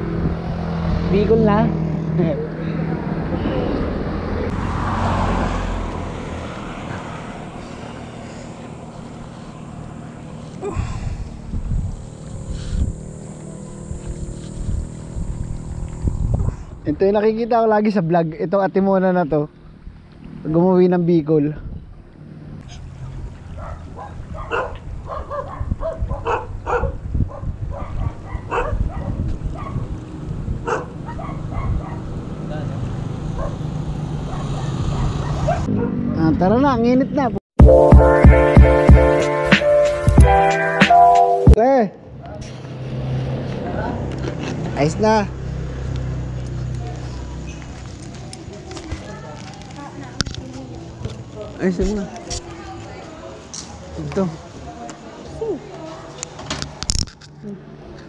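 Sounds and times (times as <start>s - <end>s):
road vehicle passing by: 0.0s - 17.3s, 17.9s - 37.4s, 42.0s - 58.0s
outdoor background noise: 0.0s - 37.4s, 41.5s - 58.0s
wind rumble on microphone: 10.7s - 17.5s, 21.6s - 32.4s
dog barking: 23.6s - 29.8s, 30.6s - 32.1s, 33.4s - 33.6s, 34.2s - 36.0s.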